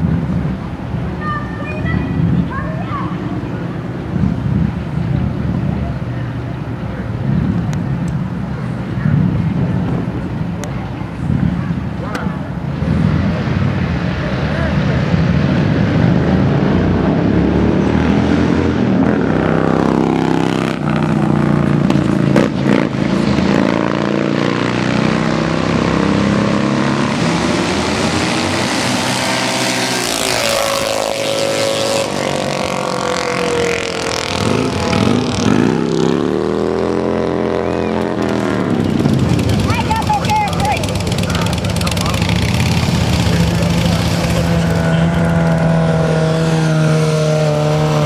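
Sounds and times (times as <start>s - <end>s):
minibike engines revving: 0.0s - 48.0s.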